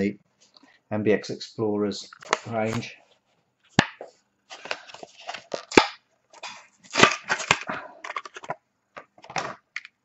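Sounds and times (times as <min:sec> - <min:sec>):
plastic packaging being torn open: 0:06.9 - 0:07.7.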